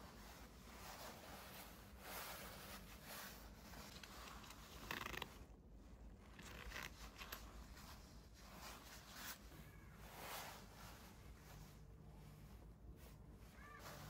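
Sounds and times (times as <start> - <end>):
nylon jacket rustling: 0.0 - 14.0
zipper rasp: 2.0 - 5.5.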